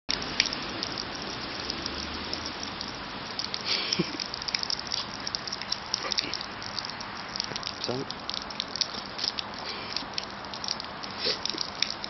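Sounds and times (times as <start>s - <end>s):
rain on wet pavement: 0.1s - 12.0s.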